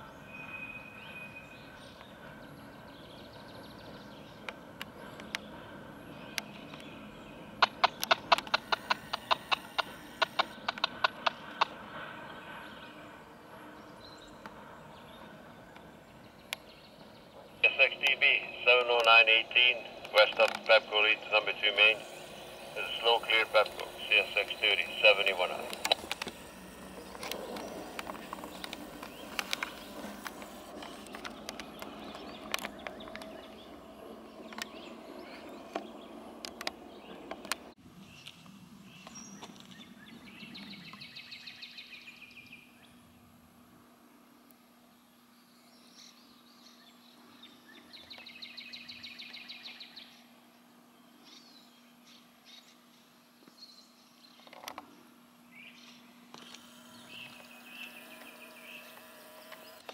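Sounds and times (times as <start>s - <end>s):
train wheels clicking over rail joints: 7.6s - 11.7s
sharp clicks and ticks: 7.6s - 11.8s, 18.8s - 33.4s
train rolling hiss: 21.3s - 31.0s.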